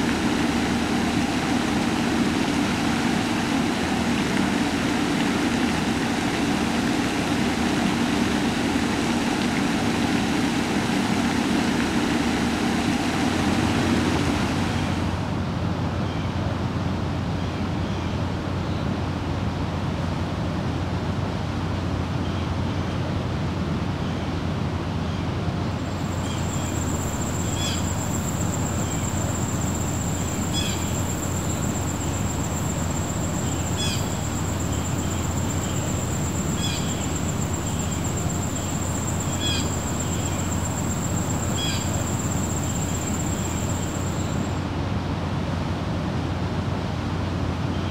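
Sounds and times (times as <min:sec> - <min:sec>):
rumbling background noise: 0:00.0 - 0:47.9
high-pitched whine: 0:25.8 - 0:44.6.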